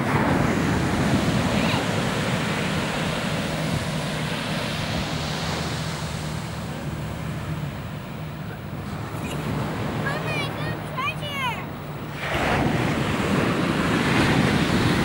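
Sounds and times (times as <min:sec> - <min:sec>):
ocean surf rushing: 0:00.0 - 0:15.0
wind on microphone: 0:12.0 - 0:15.0.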